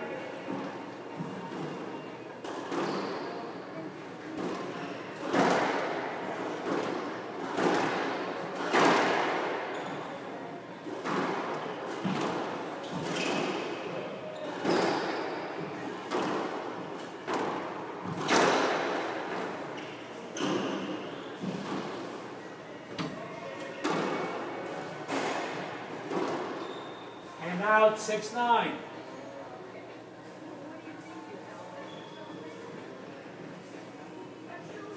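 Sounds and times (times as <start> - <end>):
squash ball hitting rackets and walls: 2.4 - 3.4, 4.3 - 10.0, 10.9 - 22.1, 23.0 - 27.0.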